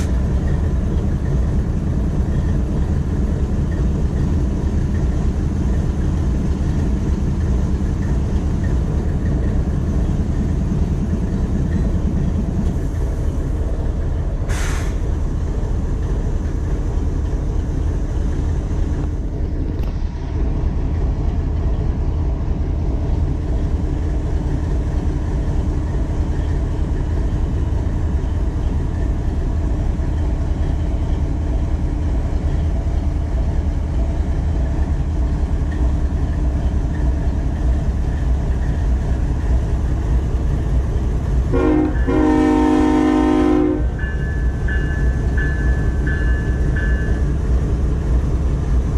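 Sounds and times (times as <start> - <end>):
short air hiss: 14.5 - 15.0
chord of steady horn tones: 41.5 - 43.9.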